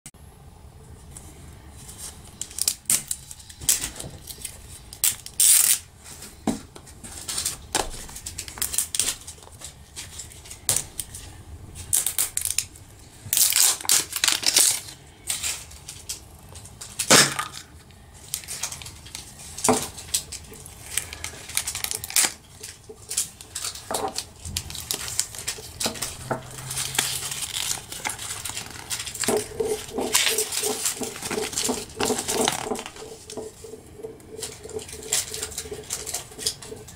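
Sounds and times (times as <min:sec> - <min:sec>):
paper leaflet crinkling: 0:01.2 - 0:17.1, 0:18.2 - 0:36.9
paper label tearing: 0:23.1 - 0:33.2.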